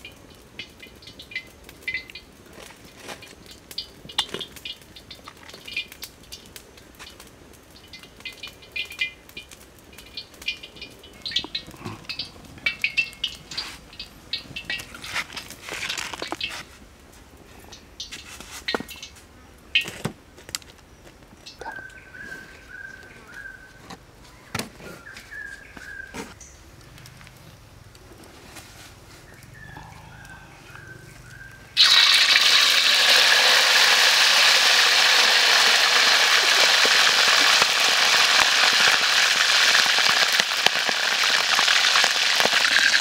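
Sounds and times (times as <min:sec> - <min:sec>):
birds chirping: 0:20.8 - 0:27.1, 0:29.2 - 0:31.8.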